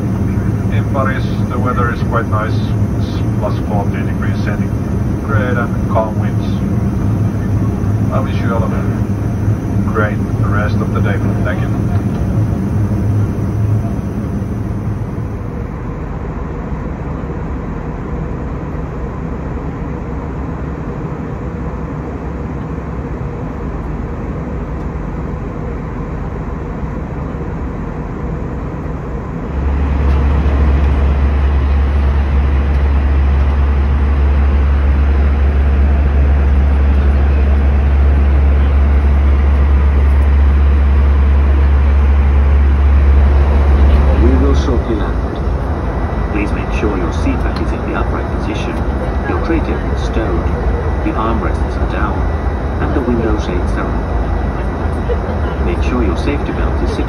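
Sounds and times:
airflow hiss in airliner cabin: 0.0s - 15.7s, 29.8s - 57.0s
jet engines droning: 0.0s - 57.0s
low rumble: 0.0s - 57.0s.

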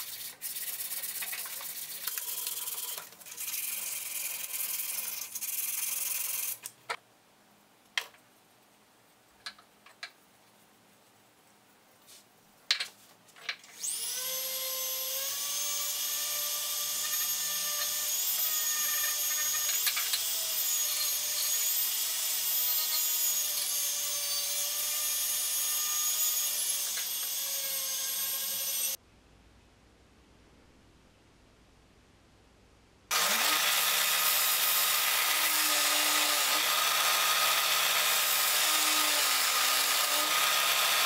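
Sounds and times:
rotary tool grinding steel: 0.0s - 6.7s, 13.8s - 29.0s, 33.1s - 41.0s.

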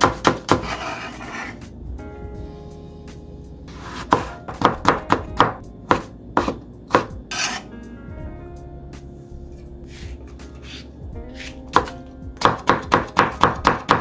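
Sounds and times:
knife chopping on cutting board: 0.0s - 1.5s, 3.7s - 7.6s, 10.6s - 14.0s
soft background music: 0.0s - 14.0s.

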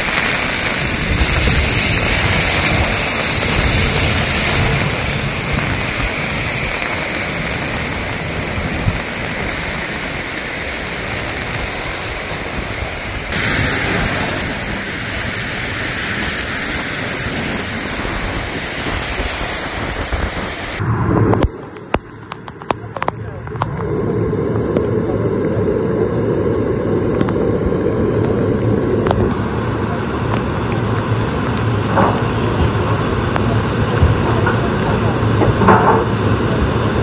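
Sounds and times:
river rushing in flood: 0.0s - 20.8s.

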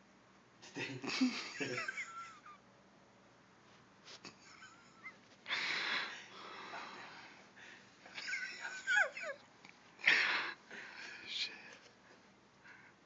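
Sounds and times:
person wheezing breaths: 5.5s - 7.9s, 10.0s - 11.3s.

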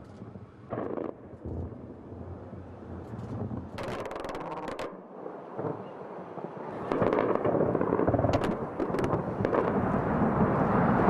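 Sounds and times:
distant anti-aircraft gunfire: 0.7s - 11.0s.

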